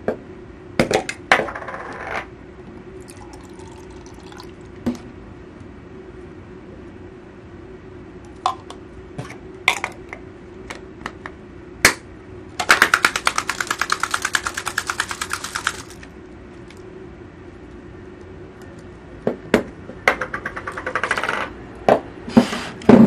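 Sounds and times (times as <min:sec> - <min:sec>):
egg rattling in plastic cup: 0:12.6 - 0:16.8.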